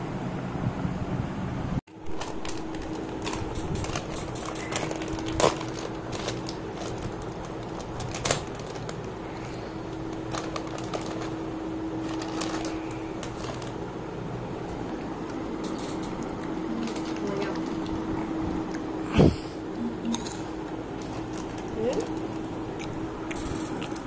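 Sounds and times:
faint steady hum: 0.0s - 24.0s
plastic snack packet crinkling: 2.0s - 13.8s.

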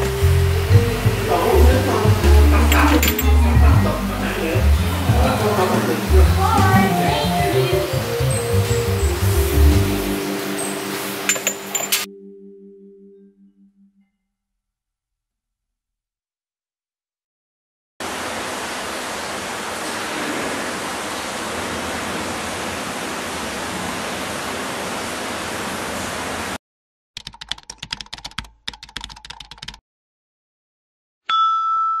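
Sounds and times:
steady hiss: 0.0s - 12.1s.

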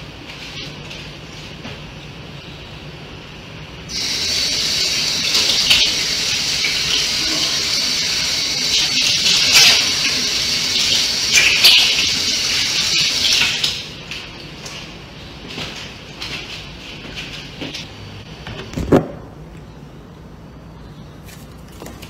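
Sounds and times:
water running from tap: 3.9s - 14.2s.

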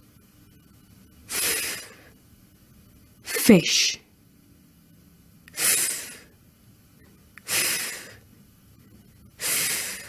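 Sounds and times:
woman making fff hisses: 1.3s - 2.0s, 5.5s - 6.3s, 7.4s - 8.2s, 9.4s - 10.0s.

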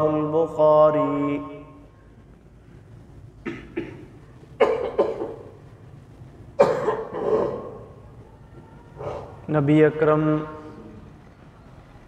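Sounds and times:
man coughing: 3.4s - 5.6s, 6.6s - 7.8s.

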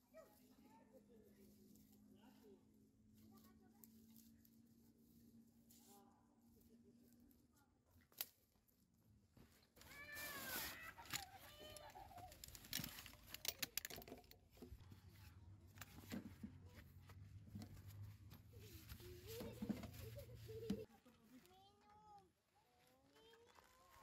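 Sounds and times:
camp chair frame clicks and rattles: 11.0s - 14.7s.

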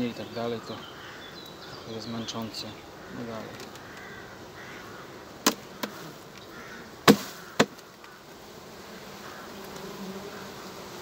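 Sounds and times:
bees humming: 0.0s - 11.0s
grid knocking against hive box: 7.0s - 7.9s.

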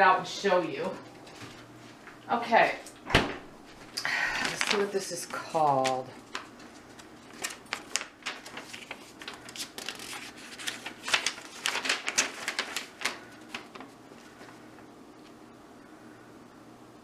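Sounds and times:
paper leaflet rustling: 4.4s - 15.4s.

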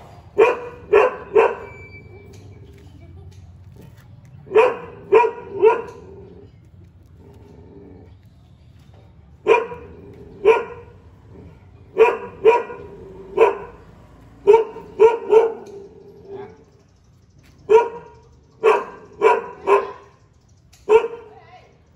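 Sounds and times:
dog barking: 0.3s - 2.3s, 4.5s - 6.2s, 9.4s - 11.0s, 11.9s - 16.6s, 17.7s - 20.2s, 20.8s - 21.4s.

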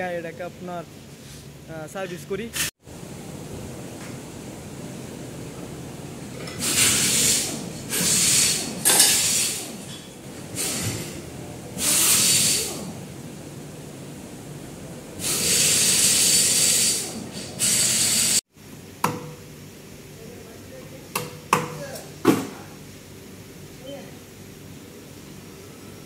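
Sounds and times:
compressed air hissing: 6.6s - 9.8s, 10.5s - 11.2s, 11.8s - 12.9s, 15.2s - 18.4s.

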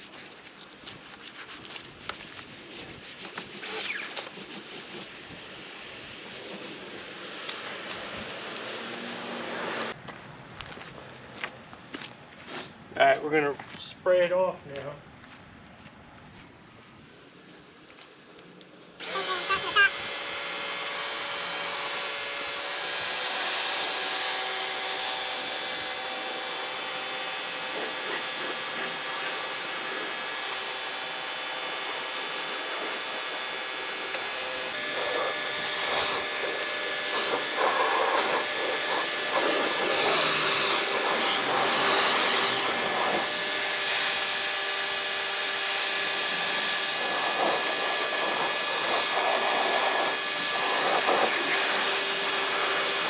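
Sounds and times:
pressure washer spraying water: 3.2s - 10.0s, 19.0s - 53.0s.

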